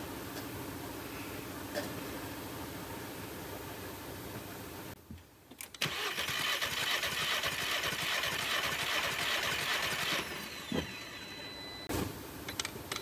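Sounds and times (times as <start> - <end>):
starter cranking engine: 5.8 - 10.7.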